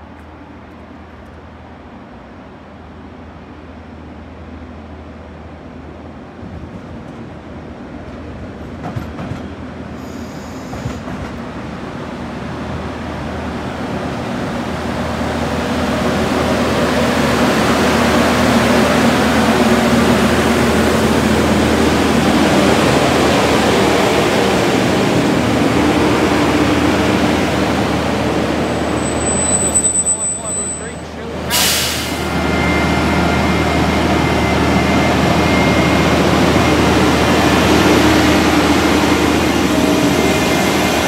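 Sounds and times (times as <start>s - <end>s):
rail machine engine hum: 0.0s - 41.0s
train wheel noise: 6.4s - 12.2s.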